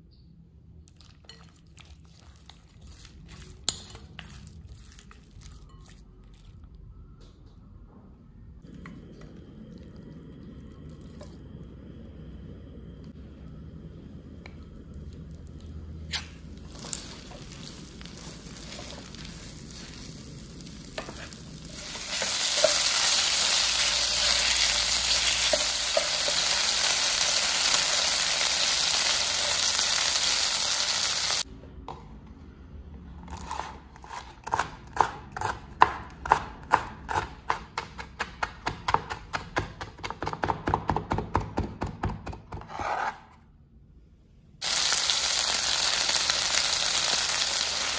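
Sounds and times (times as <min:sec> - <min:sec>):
wooden spatula stirring: 0:01.0 - 0:06.0, 0:16.7 - 0:27.0
chicken sizzling in a wok: 0:16.7 - 0:31.5, 0:44.6 - 0:47.9.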